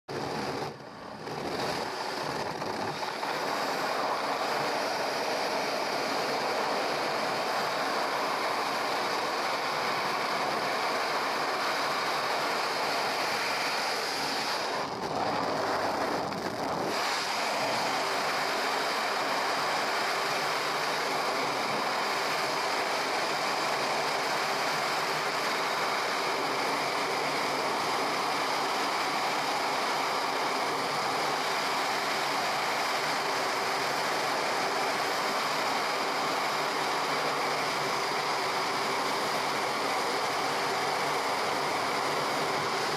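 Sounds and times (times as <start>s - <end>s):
wind rushing over microphone: 13.4s - 18.1s.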